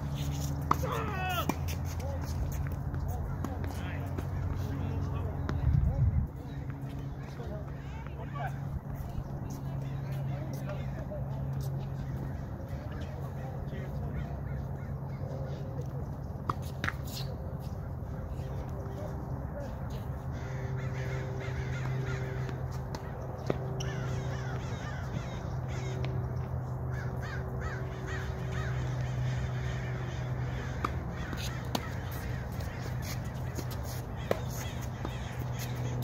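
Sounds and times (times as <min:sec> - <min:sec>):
tennis balls struck by racquets: 0:00.1 - 0:05.7, 0:21.7 - 0:25.2, 0:30.2 - 0:36.0
crows cawing: 0:20.3 - 0:22.7, 0:23.8 - 0:26.0, 0:26.9 - 0:36.0.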